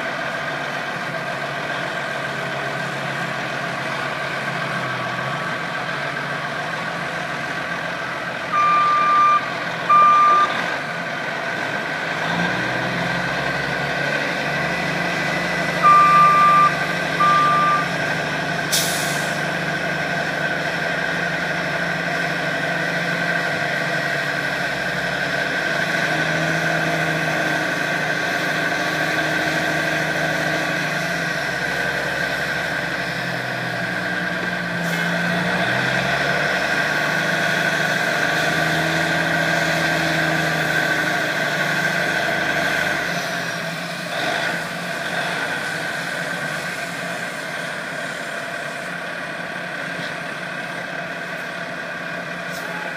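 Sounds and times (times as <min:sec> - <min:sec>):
truck diesel engine running: 0:00.0 - 0:52.9
backup alarm beeping: 0:08.5 - 0:10.5, 0:15.8 - 0:17.9.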